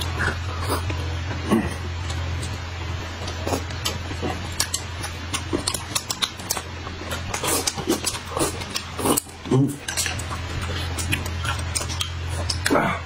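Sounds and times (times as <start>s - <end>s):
steady low hum: 0.0s - 13.0s
noodles slurped and chewed: 3.2s - 12.8s.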